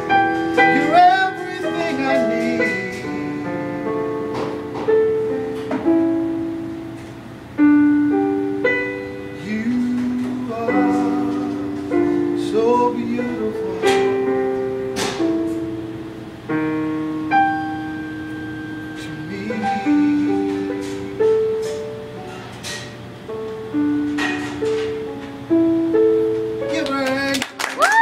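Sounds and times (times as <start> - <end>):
piano playing slow chords: 0.0 - 27.6
man singing sustained notes: 0.7 - 3.9, 9.4 - 14.1, 19.0 - 20.8.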